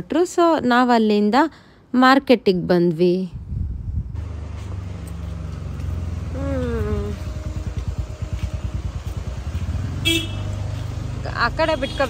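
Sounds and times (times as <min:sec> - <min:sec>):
vehicle engine running: 0:04.1 - 0:12.0.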